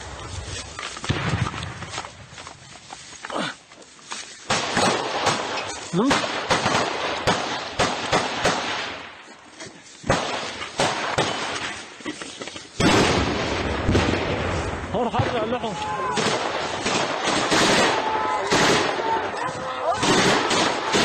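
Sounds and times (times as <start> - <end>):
running through dry grass: 0.0 - 12.8, 14.4 - 21.0
small-arms gunfire: 4.5 - 9.0, 10.1 - 11.8, 12.8 - 14.3, 16.2 - 19.2, 20.0 - 21.0
people shouting: 15.4 - 16.4, 17.5 - 21.0.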